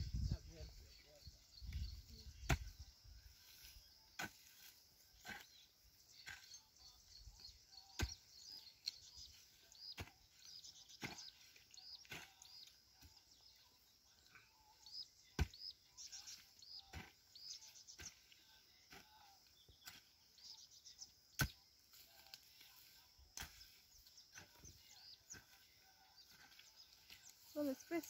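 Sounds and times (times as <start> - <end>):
small birds chirping: 0.0 - 28.0
hoe striking dry soil: 1.7 - 6.7, 7.3 - 13.5, 14.8 - 20.6, 21.3 - 25.6.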